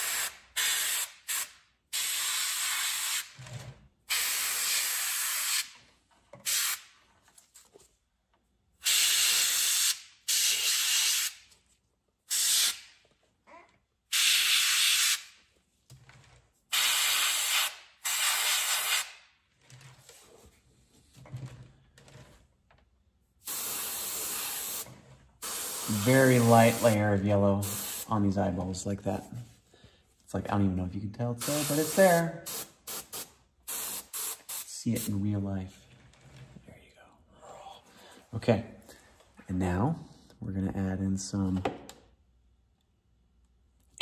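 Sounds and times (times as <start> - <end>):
airbrush spraying bursts: 0.0 - 3.4, 4.1 - 5.8, 6.4 - 6.9, 8.8 - 11.4, 12.3 - 12.9, 14.1 - 15.4, 16.7 - 19.2, 23.4 - 28.1, 31.4 - 35.2.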